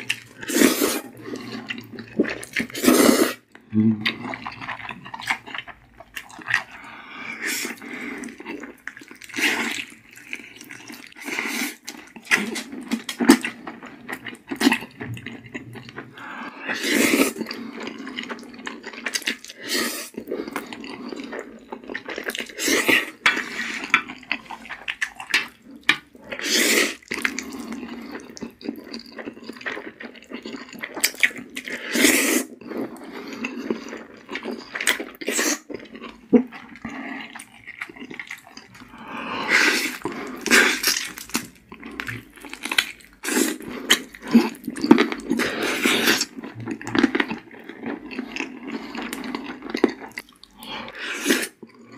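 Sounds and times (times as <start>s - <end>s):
wet noodle slurping: 0.0s - 3.4s, 16.3s - 29.1s, 31.6s - 35.7s, 36.6s - 42.4s, 43.2s - 46.4s, 47.7s - 51.9s
quiet chewing: 0.0s - 51.9s.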